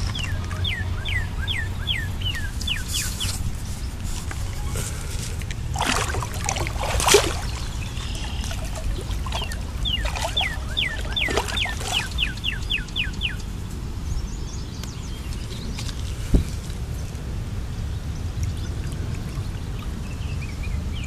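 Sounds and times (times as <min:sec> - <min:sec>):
bird calling falling notes: 0:00.0 - 0:13.4
water splashing and sloshing: 0:00.0 - 0:13.8, 0:15.1 - 0:21.0.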